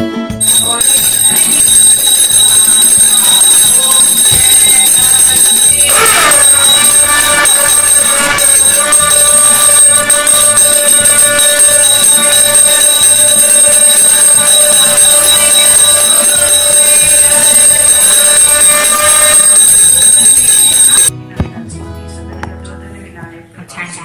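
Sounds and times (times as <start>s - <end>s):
hand bell ringing rapidly: 0.4s - 21.1s.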